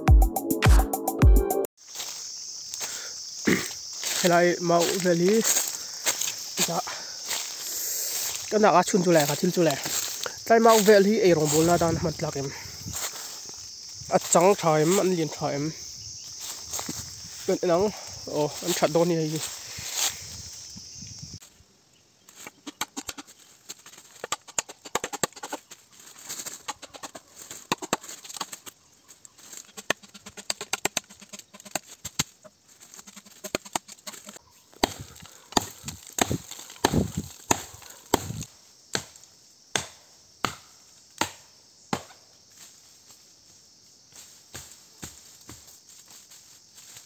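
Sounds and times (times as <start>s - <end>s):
machete chopping bamboo: 27.6s - 28.6s, 29.8s - 32.3s, 33.4s - 42.2s.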